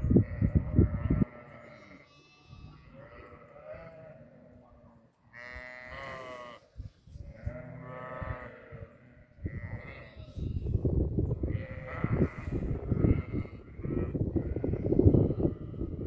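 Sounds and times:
sheep bleating: 0.1s - 4.7s, 5.3s - 10.7s, 11.4s - 16.0s
low rumble on microphone: 6.8s - 16.0s.

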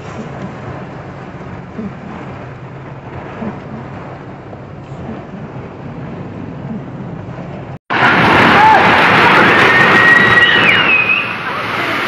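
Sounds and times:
low rumble: 0.0s - 11.6s
heavy rain: 0.0s - 12.0s
strong storm wind: 0.0s - 12.0s.

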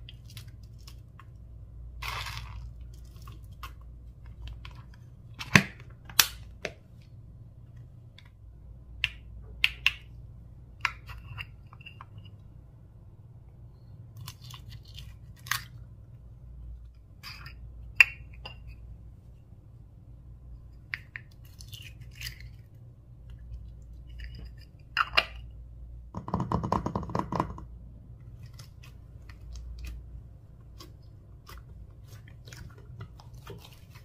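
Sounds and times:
faint low hum: 0.0s - 34.0s
slime squishing with clicks and pops: 8.9s - 10.2s.

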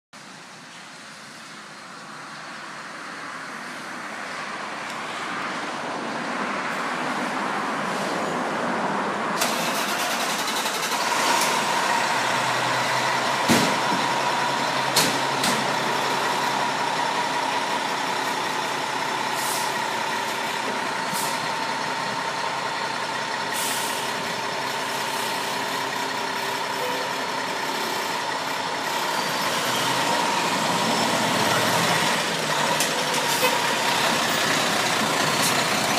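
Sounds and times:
fire engine diesel engine running: 9.4s - 35.9s
air brake hisses: 19.4s - 19.8s, 23.6s - 24.2s.

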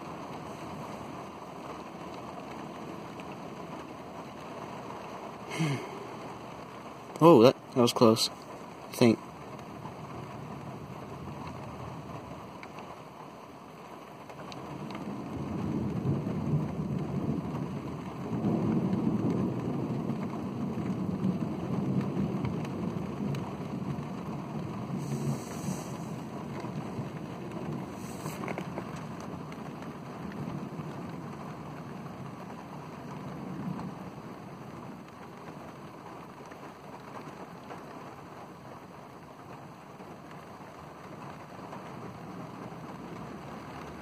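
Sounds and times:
heavy rain: 0.0s - 44.0s
rolling thunder: 14.7s - 35.1s.

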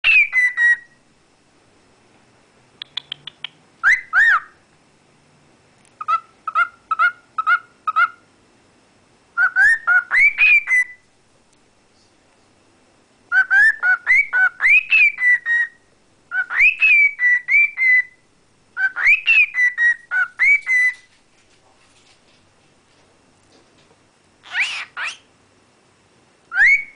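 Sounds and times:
cockatiel whistling: 0.0s - 1.0s, 3.0s - 4.6s, 9.4s - 11.0s, 13.3s - 18.2s, 18.8s - 21.1s, 24.4s - 25.2s, 26.5s - 26.9s.

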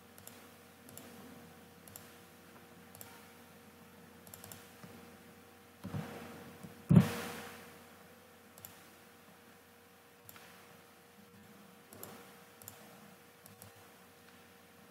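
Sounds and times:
faint steady hum: 0.0s - 14.9s
computer mouse clicks: 0.2s - 1.2s, 1.8s - 2.2s, 2.9s - 3.3s, 4.2s - 4.8s, 8.6s - 8.8s, 10.2s - 10.6s, 11.9s - 14.4s.

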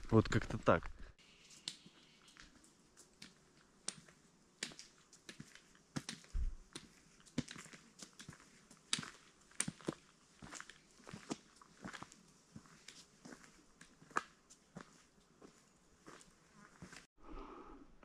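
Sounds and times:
low thump: 6.4s - 6.6s.

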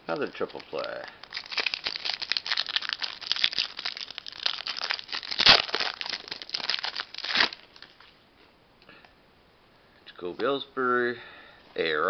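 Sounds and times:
foil wrapper crinkling: 0.1s - 8.0s.

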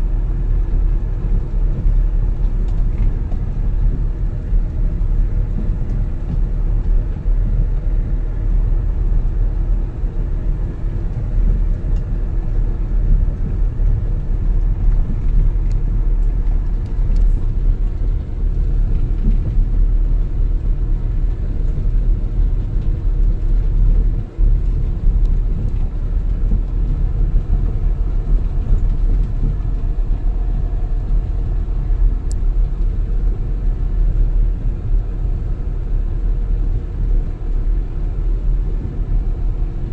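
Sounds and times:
vehicle driving on dirt road: 0.0s - 39.9s.

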